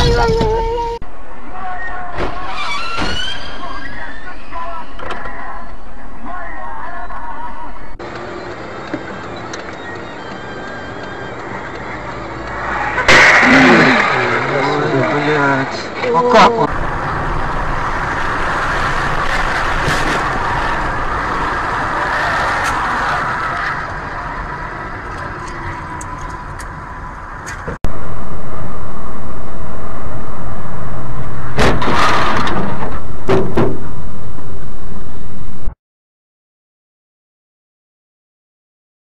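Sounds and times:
road and wind noise inside car: 0:05.0 - 0:31.8
loud distorted rush: 0:12.6 - 0:15.4, 0:16.7 - 0:27.3
crashing impacts: 0:13.1 - 0:14.5, 0:31.5 - 0:34.0.

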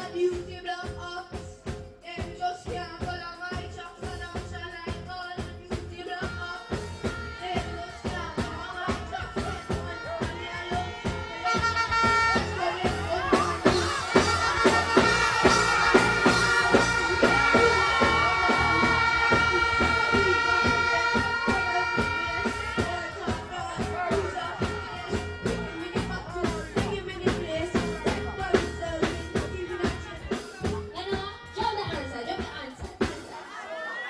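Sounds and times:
dancehall music with drum beat: 0:00.0 - 0:34.0.

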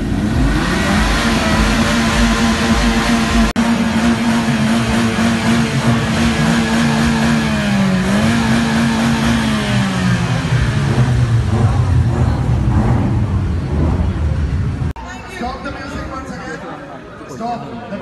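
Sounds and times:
car engine revving with loud exhaust: 0:00.0 - 0:15.0.

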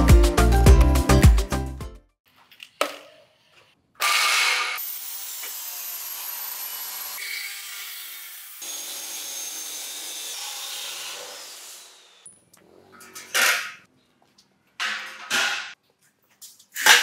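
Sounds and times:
chop saw cutting metal: 0:04.0 - 0:12.3.

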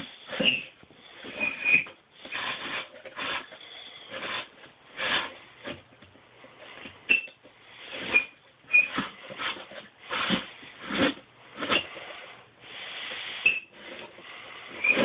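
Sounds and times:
high squeaks: 0:00.0 - 0:04.3, 0:07.1 - 0:07.4, 0:08.0 - 0:09.0, 0:13.4 - 0:13.8
wooden mechanism scraping: 0:00.0 - 0:15.0.

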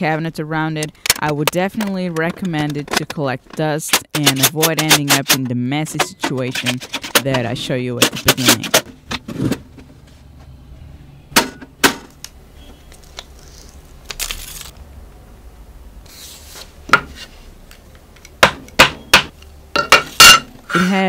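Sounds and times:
tape backing peeling: 0:12.9 - 0:14.8.

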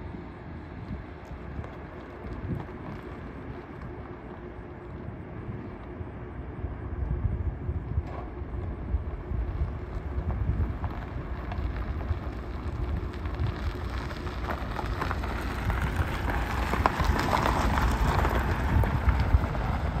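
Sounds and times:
tyres crunching over gravel: 0:00.0 - 0:05.0, 0:08.0 - 0:20.0
wind on microphone: 0:06.5 - 0:20.0.

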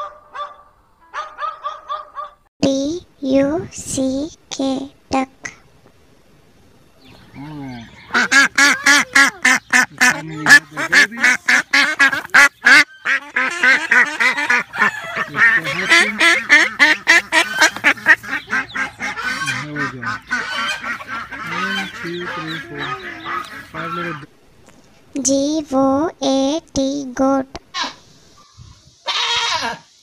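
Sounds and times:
duck quacking: 0:07.4 - 0:24.3.

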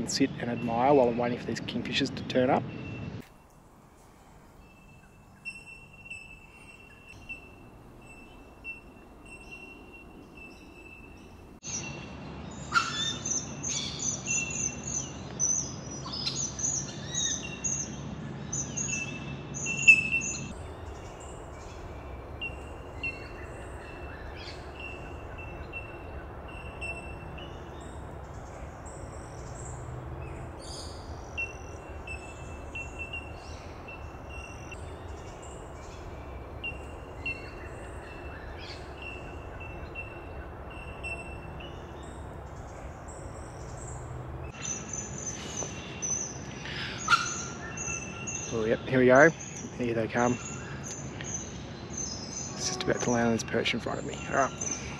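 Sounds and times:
birds chattering and whistling: 0:04.5 - 0:54.9
repeating high bird note: 0:52.5 - 0:53.6.

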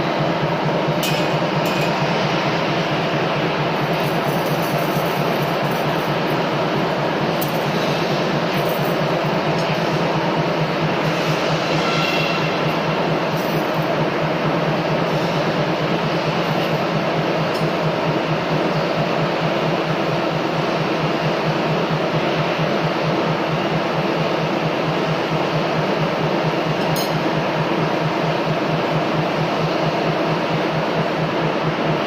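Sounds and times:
machinery running: 0:00.0 - 0:20.0.

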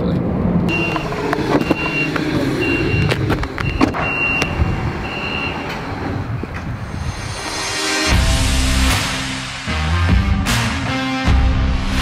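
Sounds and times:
high electronic warning beep: 0:00.7 - 0:05.7.

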